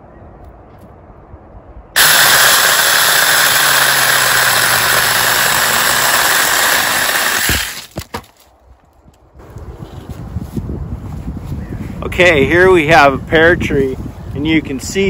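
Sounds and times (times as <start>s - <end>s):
electric chainsaw running: 2.0s - 8.0s.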